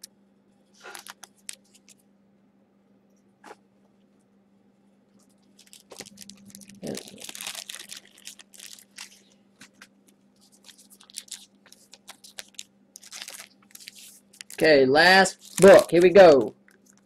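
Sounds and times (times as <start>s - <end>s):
foil wrapper crinkling: 0.8s - 2.0s, 5.2s - 17.0s.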